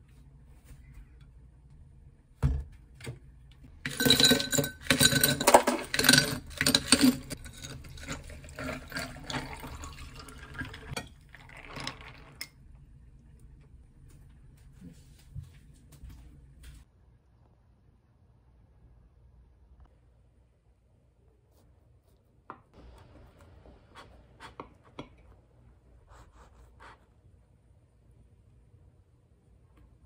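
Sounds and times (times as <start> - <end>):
ice cubes clattering into glass: 3.9 - 12.4
coffee pouring over ice: 3.9 - 12.6.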